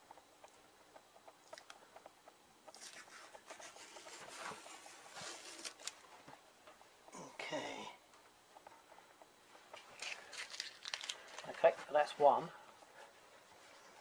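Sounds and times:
tape rustling and rubbing: 0:02.7 - 0:06.2, 0:09.7 - 0:11.6.

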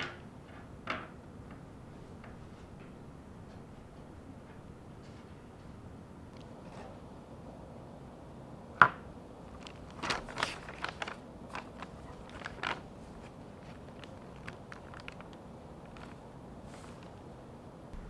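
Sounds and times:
book pages turning: 0:09.5 - 0:17.2.

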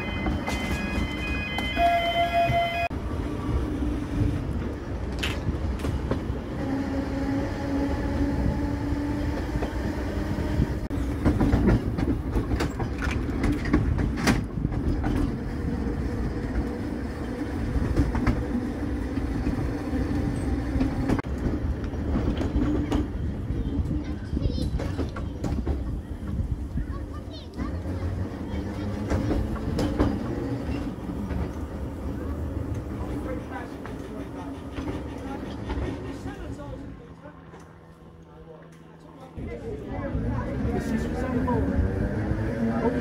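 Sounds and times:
tram rumble and motor hum: 0:00.0 - 0:43.0
wheels clacking over rail joints: 0:10.9 - 0:37.8.

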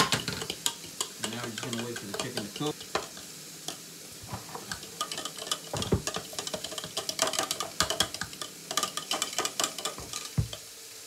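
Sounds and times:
utensil tapping plastic cup: 0:05.7 - 0:10.6.

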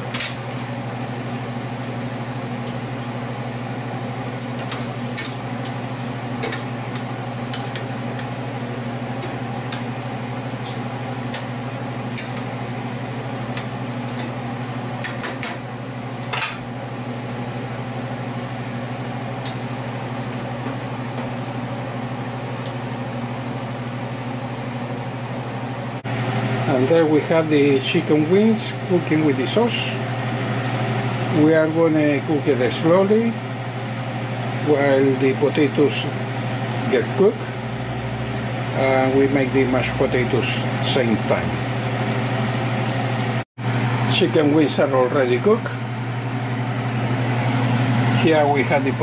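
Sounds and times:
low hum: 0:36.2 - 0:43.4.

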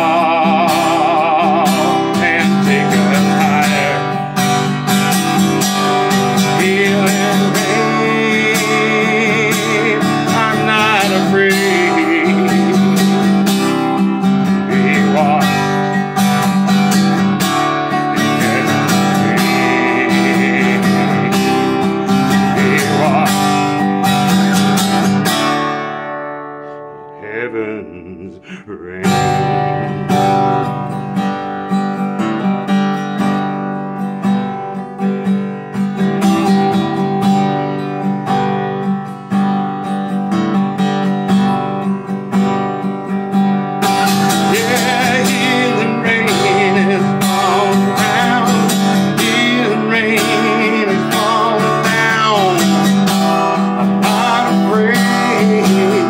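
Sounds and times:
man singing: 0:00.0 - 0:25.2, 0:27.1 - 0:30.9, 0:43.9 - 0:56.0
acoustic guitar strumming: 0:00.0 - 0:56.0.

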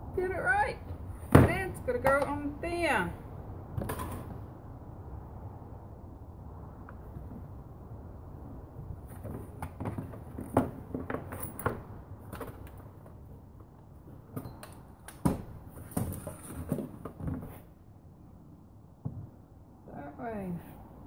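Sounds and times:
knocks and rattles on wooden workbench: 0:09.2 - 0:12.8.

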